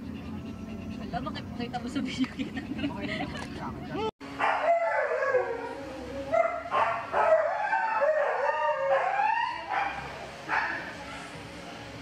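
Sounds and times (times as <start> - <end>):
dog howling: 4.4 - 10.0.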